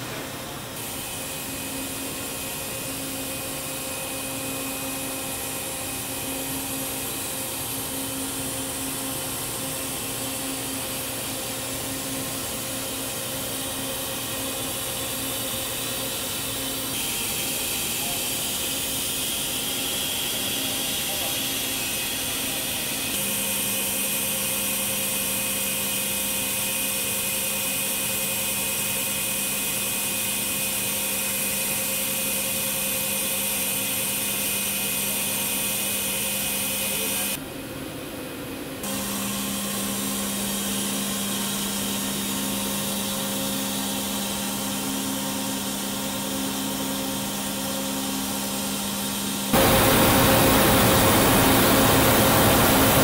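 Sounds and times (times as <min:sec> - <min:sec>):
machine tool spindle humming: 0:00.8 - 0:37.4, 0:38.8 - 0:53.0
steady rushing noise: 0:49.6 - 0:53.0.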